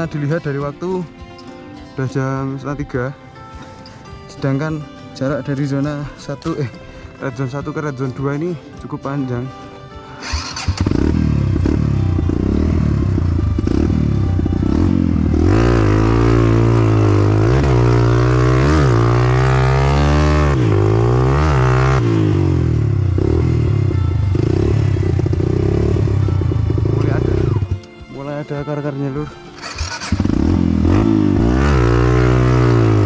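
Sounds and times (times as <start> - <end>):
dirt bike engine revving: 10.2 - 27.8, 29.6 - 33.0.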